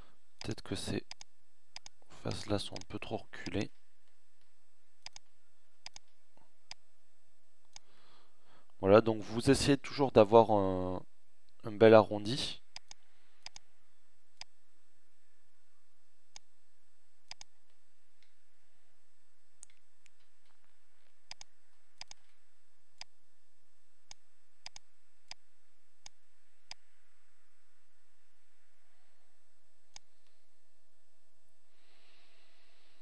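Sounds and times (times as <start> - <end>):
computer mouse buttons clicking: 5.0 - 6.8, 12.7 - 13.7, 17.3 - 17.5, 21.3 - 22.3, 24.1 - 25.4.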